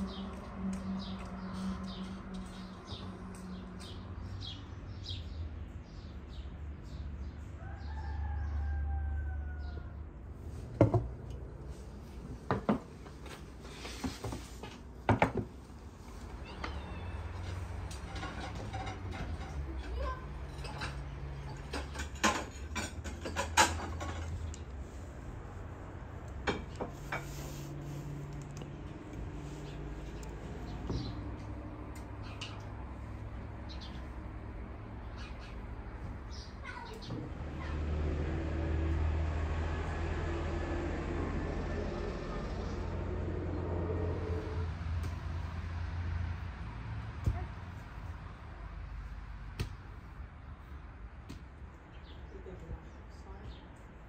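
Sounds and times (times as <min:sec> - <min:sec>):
small birds chirping: 0:00.0 - 0:08.8, 0:27.8 - 0:37.8, 0:51.6 - 0:53.9
rooster crowing: 0:07.6 - 0:10.1.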